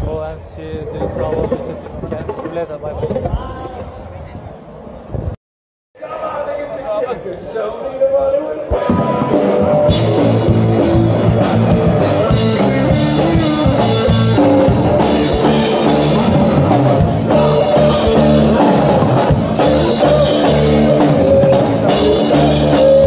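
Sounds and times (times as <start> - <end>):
band playing rock music: 8.4 - 23.0
drum kit: 8.4 - 23.0.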